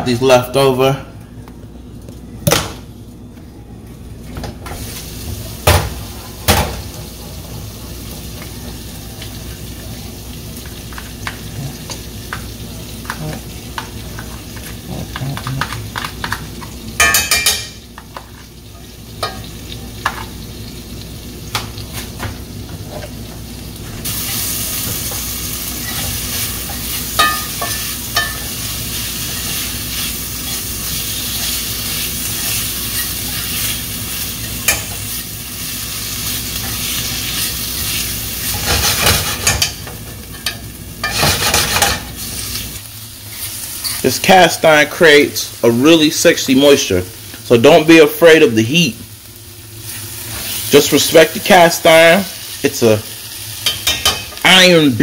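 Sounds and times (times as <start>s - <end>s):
food sizzling in a pan: 4.8s - 55.0s.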